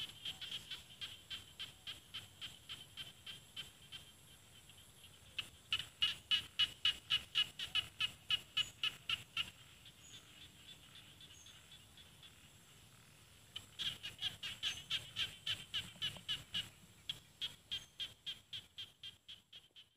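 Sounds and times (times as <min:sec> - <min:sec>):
frog calling in short sharp notes: 0:00.0 - 0:12.5.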